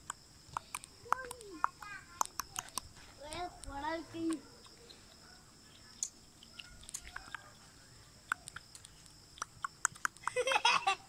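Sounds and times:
puppies scuffing on dirt: 2.6s - 5.3s.

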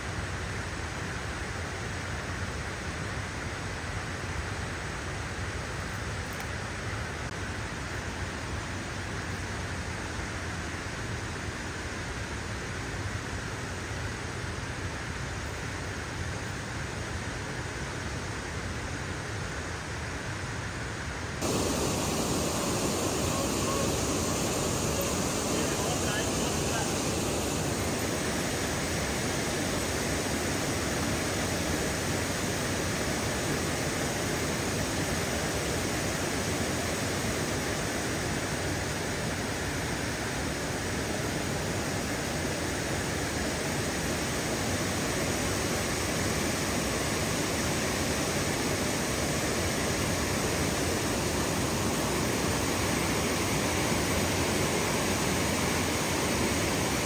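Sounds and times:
water rushing from a dam: 0.0s - 57.0s.

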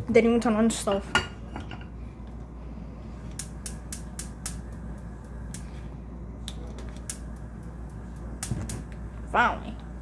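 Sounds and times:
gas stove igniter clicking: 3.3s - 5.8s, 6.4s - 10.0s.

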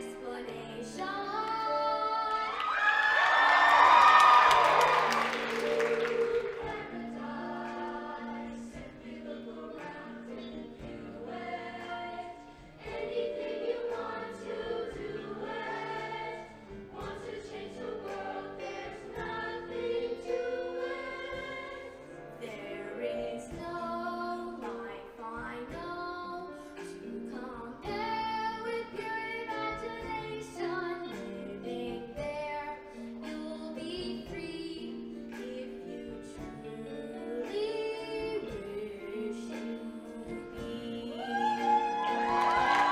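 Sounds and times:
choir singing in harmony: 0.0s - 24.7s
audience cheering: 2.5s - 6.6s, 41.2s - 42.9s
instrumental backing: 3.2s - 42.9s.

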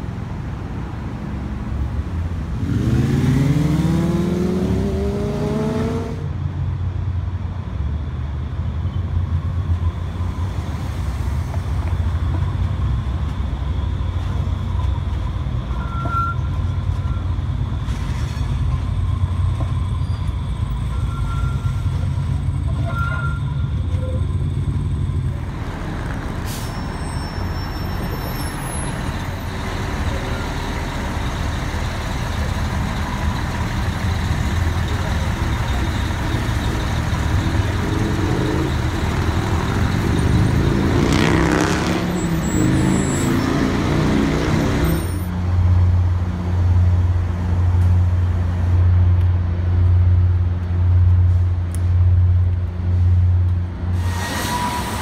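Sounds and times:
city street traffic: 0.0s - 55.0s
heavy vehicle rising in pitch: 12.1s - 48.6s.

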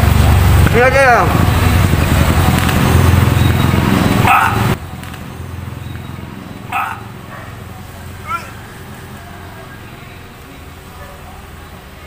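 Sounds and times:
street traffic rumble: 0.0s - 12.0s
dog barking: 4.2s - 4.8s, 6.7s - 8.7s, 11.0s - 11.4s.

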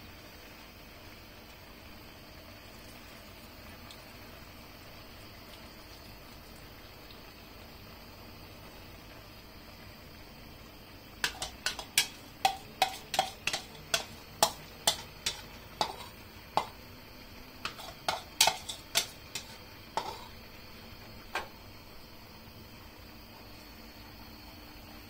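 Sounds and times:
metal utensil clinking on cookware: 11.2s - 16.7s, 17.6s - 20.3s.

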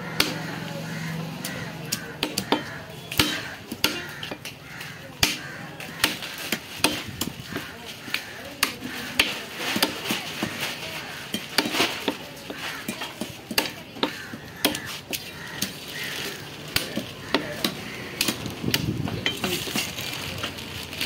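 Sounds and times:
knife chopping on wood: 1.9s - 4.4s.

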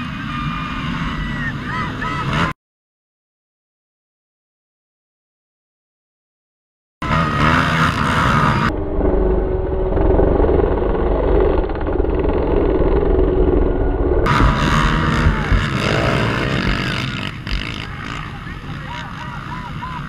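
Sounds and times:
motorcycle engine running: 7.0s - 20.0s.

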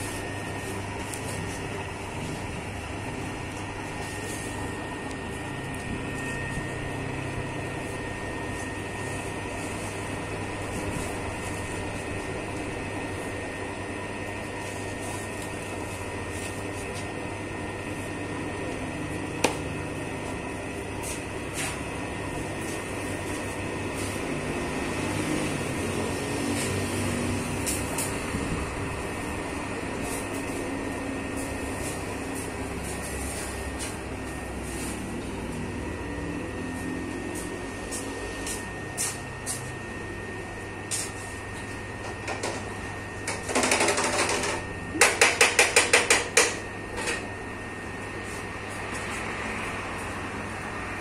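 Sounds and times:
dough mixer motor humming: 41.4s - 51.0s.

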